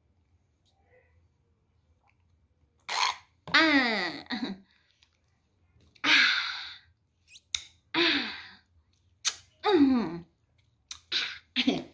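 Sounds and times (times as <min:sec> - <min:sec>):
kiss smacks: 0:07.3 - 0:07.8, 0:09.2 - 0:09.5.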